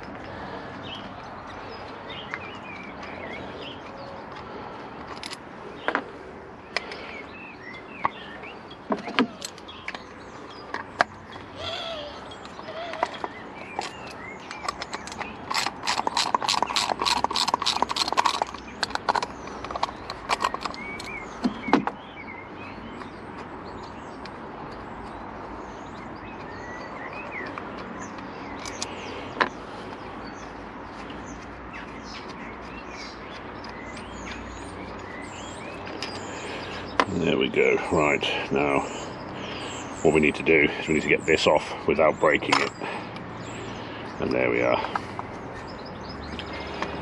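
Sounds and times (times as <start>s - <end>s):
birds chirping faintly: 0.0s - 47.0s
socket ratchet clicking: 12.6s - 21.2s.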